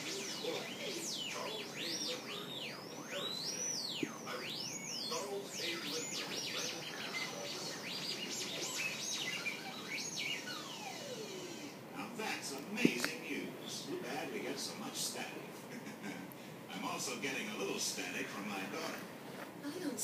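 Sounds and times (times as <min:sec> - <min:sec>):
sweeping radio whistles: 0:00.0 - 0:11.8
radio static hiss: 0:00.0 - 0:20.0.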